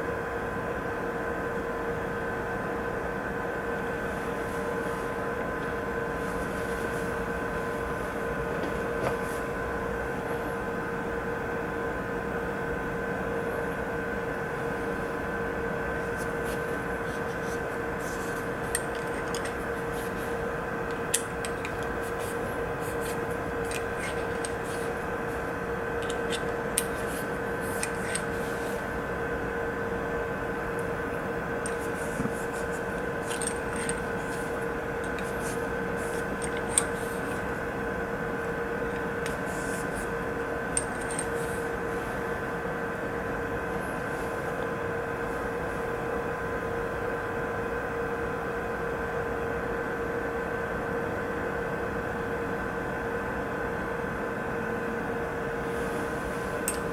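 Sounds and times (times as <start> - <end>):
steady background hum: 0.0 - 56.9
light clicks and taps of metal parts: 36.4 - 37.4, 40.8 - 41.4.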